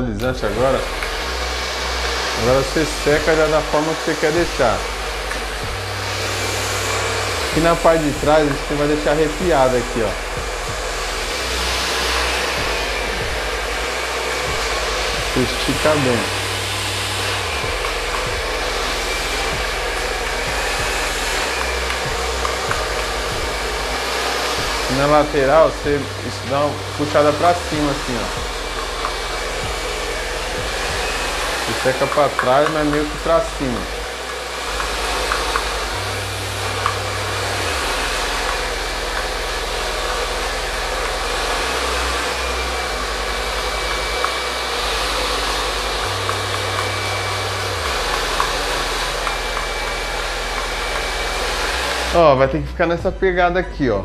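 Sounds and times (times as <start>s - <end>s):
hair dryer blowing: 0.0s - 53.5s.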